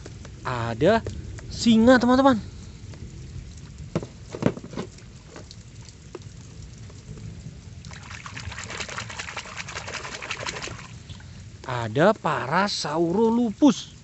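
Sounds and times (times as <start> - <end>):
water splashing and sloshing: 0.0 - 14.0.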